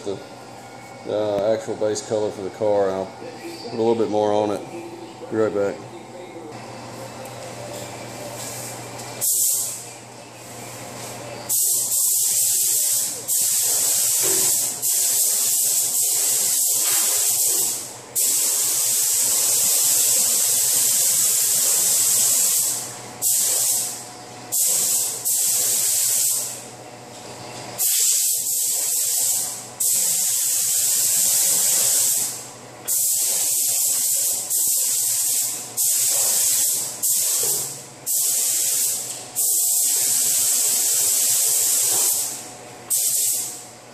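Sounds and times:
paint spray gun hissing: 0:09.2 - 0:09.8, 0:11.5 - 0:23.9, 0:24.5 - 0:26.5, 0:27.8 - 0:43.5.

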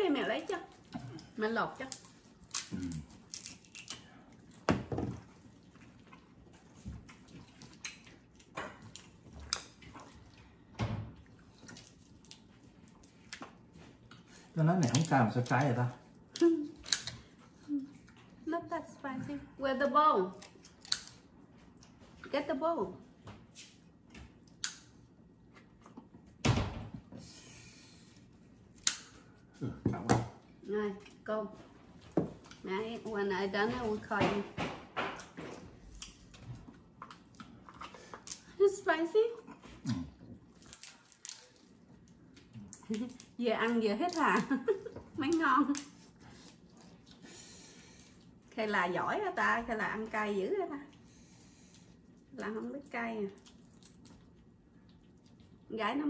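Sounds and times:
shells cracking while peeled: 0:01.8 - 0:04.1, 0:14.7 - 0:17.3, 0:20.4 - 0:21.2, 0:24.5 - 0:24.9, 0:28.7 - 0:29.2, 0:40.5 - 0:47.2.

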